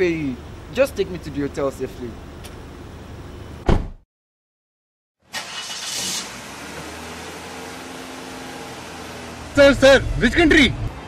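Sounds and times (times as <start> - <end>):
car door slamming: 3.6 - 4.0
brief hiss: 5.3 - 6.4
car engine running: 5.4 - 11.0.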